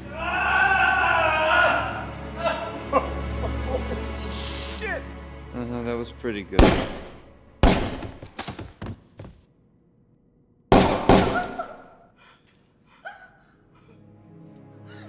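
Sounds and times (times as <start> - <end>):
echoing revolver gunshots: 6.6 - 8.3, 10.7 - 11.9.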